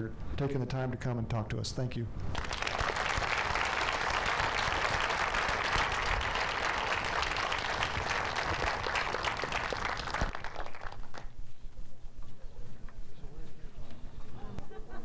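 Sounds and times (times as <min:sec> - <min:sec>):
audience applauding: 0:02.3 - 0:11.3.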